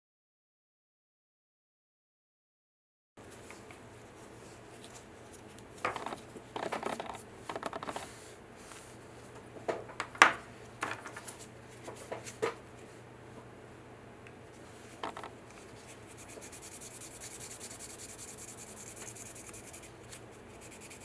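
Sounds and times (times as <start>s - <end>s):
gloved hands rubbing plastic: 14.8s - 21.0s.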